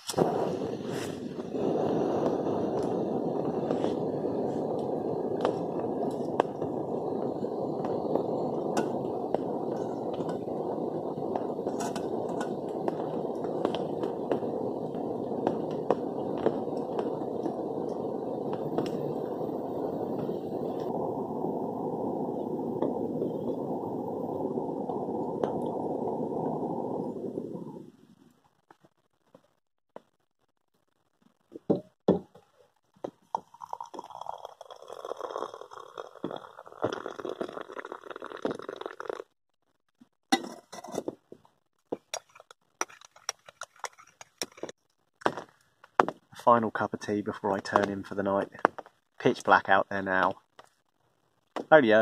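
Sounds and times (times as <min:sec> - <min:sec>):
gas stove burner hissing: 0:00.0 - 0:28.0.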